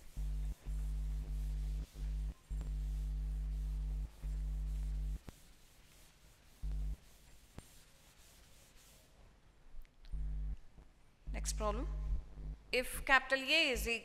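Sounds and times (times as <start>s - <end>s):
electrical hum: 0.0s - 5.7s, 6.5s - 7.8s, 9.8s - 12.8s
duster scrubbing chalkboard: 0.0s - 9.2s.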